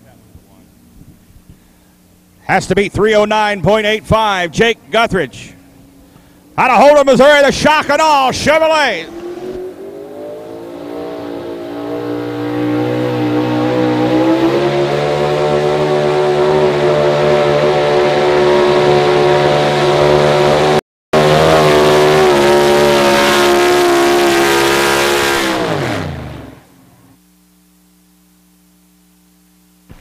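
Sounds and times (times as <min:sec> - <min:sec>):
pickup engine at high revs: 0:08.5 - 0:26.9.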